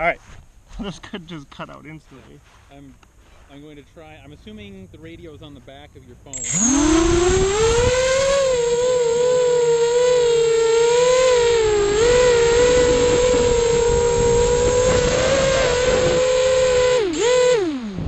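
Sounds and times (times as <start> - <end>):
drone motors whining: 6.3 - 18.0.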